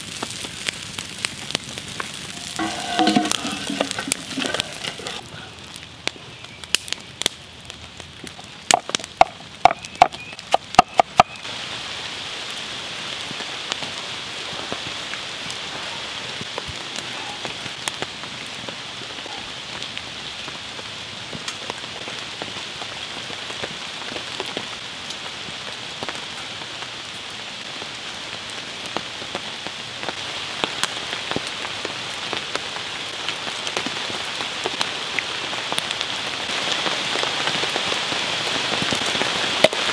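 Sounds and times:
rain pattering: 0:00.0 - 0:39.9
wooden spoon clacking on pot: 0:02.4 - 0:05.2.

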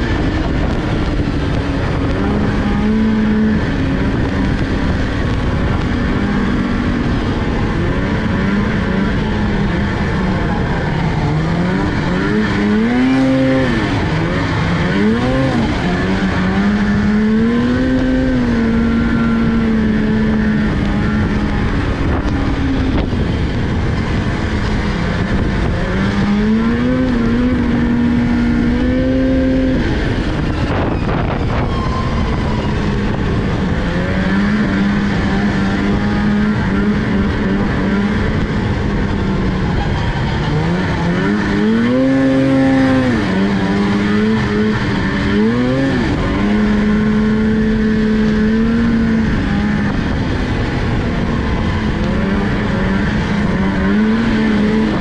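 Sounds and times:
snowmobile engine revving: 0:00.0 - 0:55.0.

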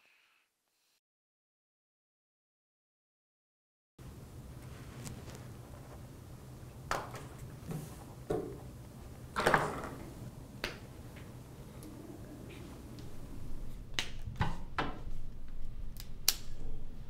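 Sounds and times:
low room hum: 0:04.0 - 0:17.0.

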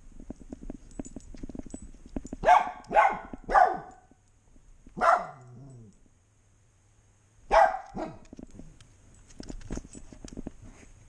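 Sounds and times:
dog barking: 0:02.4 - 0:04.1, 0:05.0 - 0:05.7, 0:07.5 - 0:08.3.

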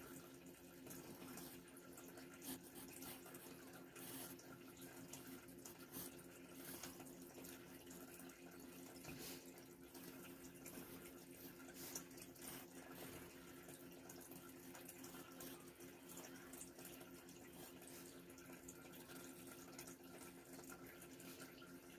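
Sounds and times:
low steady hum: 0:00.0 - 0:21.9
pencil scratching on paper: 0:02.4 - 0:04.4.

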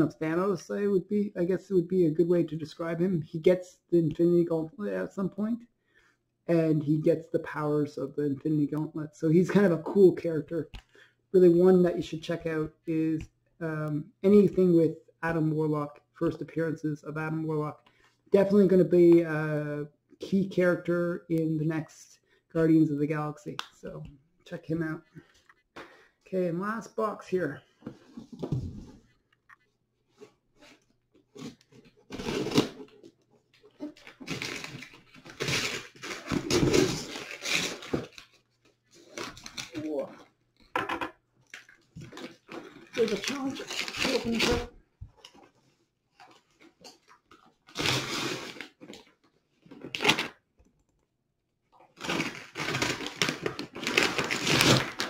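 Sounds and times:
paper crinkling and tearing: 0:30.6 - 0:40.1, 0:41.6 - 0:45.5, 0:46.2 - 0:50.4, 0:52.0 - 0:55.0.

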